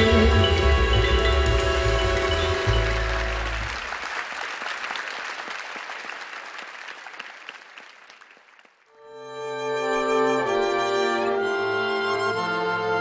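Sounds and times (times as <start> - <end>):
big band held chord: 0.0 - 3.9
audience applauding: 0.0 - 8.9.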